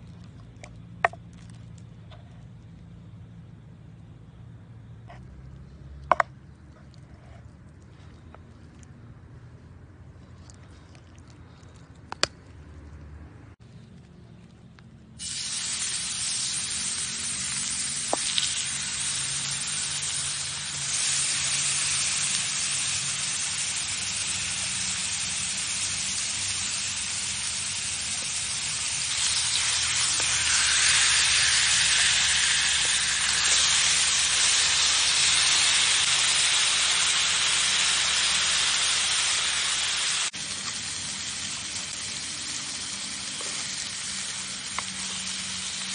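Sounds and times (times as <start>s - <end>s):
meat sizzling in a grill pan: 15.2s - 45.9s.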